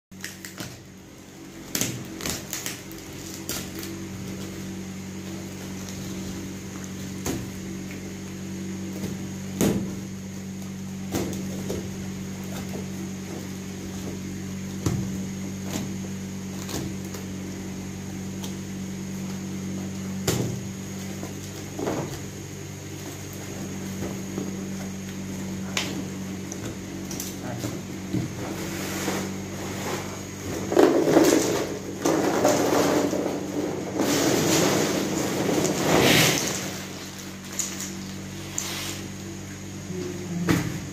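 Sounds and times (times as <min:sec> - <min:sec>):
tape and cardboard crackling and tearing: 0:00.2 - 0:01.0, 0:01.6 - 0:17.6, 0:18.3 - 0:39.3
steady low hum: 0:00.2 - 0:40.9.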